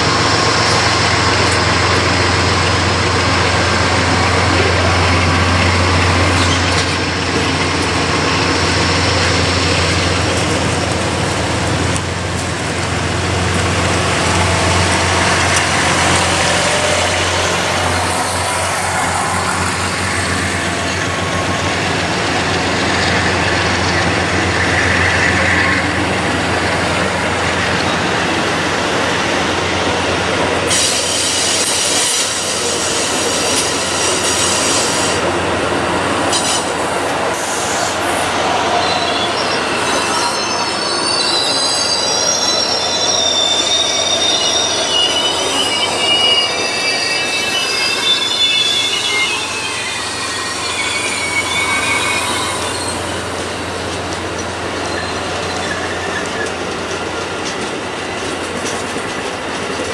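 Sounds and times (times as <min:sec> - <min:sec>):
train wheels rumbling on rail: 0:00.0 - 0:59.9
high-pitched wheel squeal: 0:14.2 - 0:21.6, 0:37.3 - 0:56.6.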